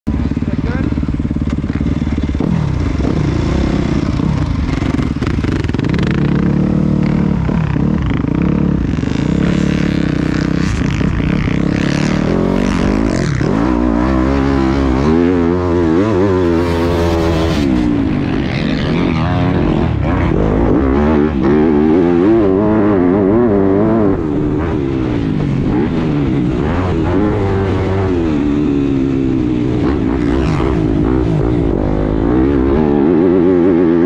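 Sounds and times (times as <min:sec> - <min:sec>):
motocross bike engine revving: 0:00.1 - 0:34.0.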